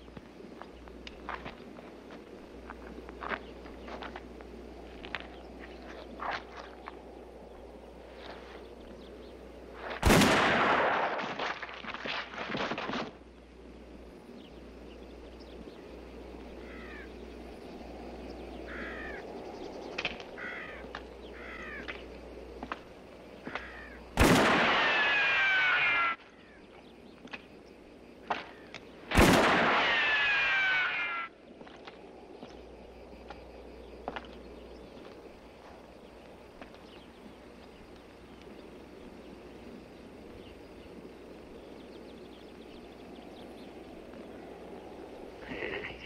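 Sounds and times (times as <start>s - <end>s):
low outdoor ambience: 0.0s - 46.0s
ringing gunshots: 10.0s - 11.5s, 24.2s - 25.9s, 29.1s - 30.7s.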